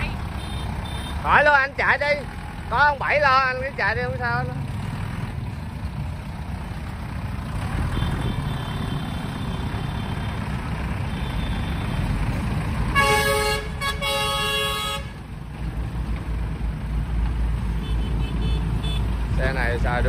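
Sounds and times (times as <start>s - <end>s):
tractor engine running: 0.0s - 20.0s
vehicle horn blasts: 12.9s - 15.2s, 17.8s - 19.1s.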